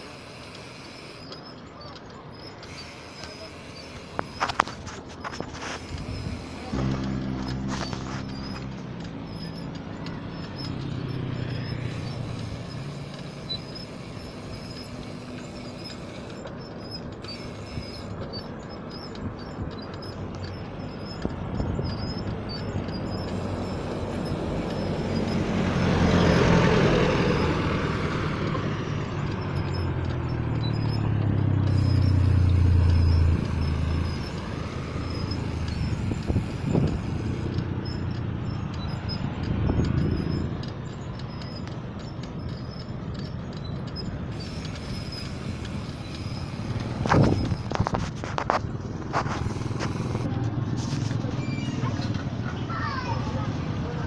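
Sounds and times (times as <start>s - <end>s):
motor vehicle passing: 0.0s - 54.0s
deep steady drone: 5.5s - 40.6s.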